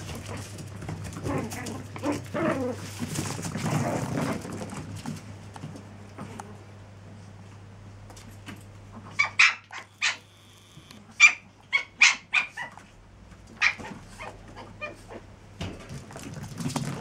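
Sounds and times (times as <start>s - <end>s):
puppy yipping: 9.0s - 10.3s, 11.1s - 12.8s, 13.6s - 15.2s.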